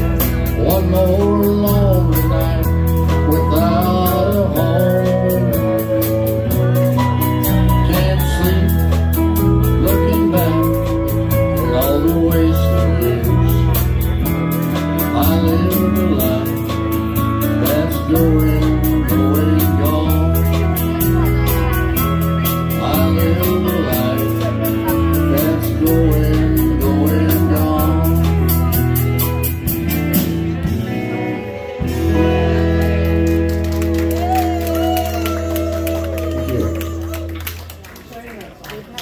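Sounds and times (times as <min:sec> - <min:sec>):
person singing: 0:00.0 - 0:29.5, 0:34.0 - 0:37.5
keyboard: 0:00.0 - 0:38.6
bass: 0:00.0 - 0:39.0.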